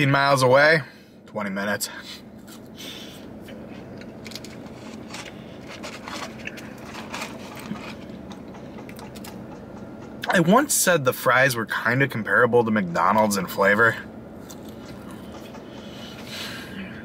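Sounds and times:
steady low hum: 0.0s - 17.0s
chewing and mouth clicks: 3.5s - 9.6s, 14.4s - 15.6s.

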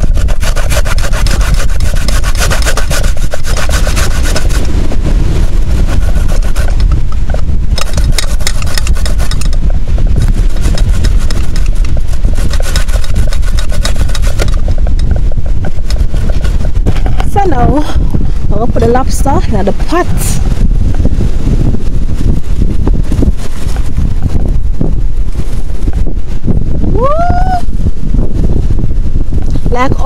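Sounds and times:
coconut grating on metal grater: 0.0s - 4.9s, 5.5s - 17.8s.

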